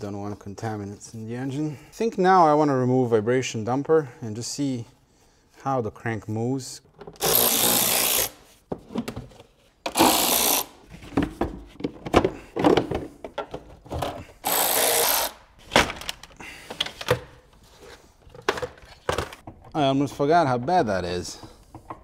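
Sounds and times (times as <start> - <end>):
plastic clunks and knocks: 8.7 - 10.0, 11.0 - 14.2
cordless power driver whirring: 14.4 - 15.4.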